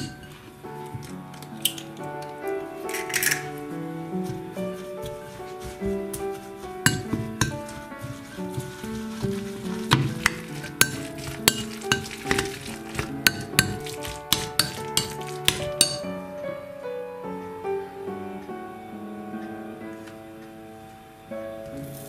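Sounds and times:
background music: 0:00.0 - 0:22.0
spoon clinking against glass bowl: 0:06.9 - 0:07.6, 0:10.2 - 0:16.1.

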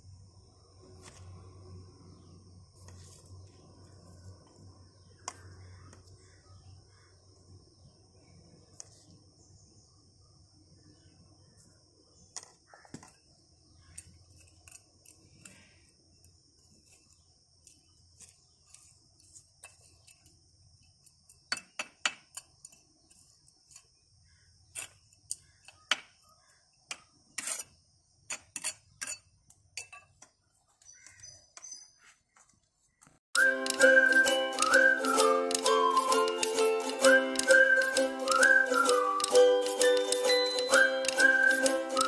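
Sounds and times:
trowel scraping into soil: 0:27.4 - 0:27.8.

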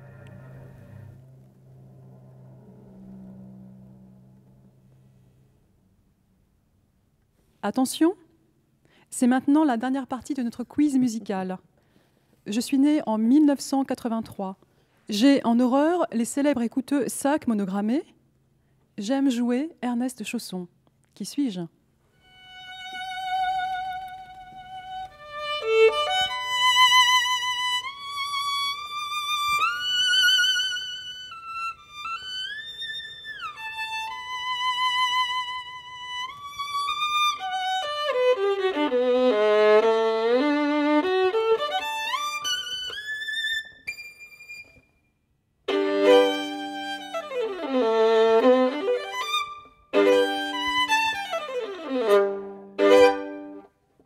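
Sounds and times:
solo violin playing: 0:00.0 - 0:01.5, 0:22.2 - 0:44.7, 0:45.7 - 0:53.7.

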